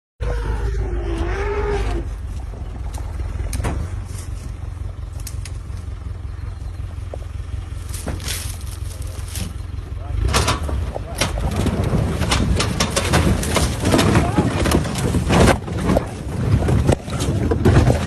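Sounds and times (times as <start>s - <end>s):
vehicle engine rumbling: 0.2s - 18.0s
rustles and knocks: 7.0s - 9.7s, 10.3s - 18.0s.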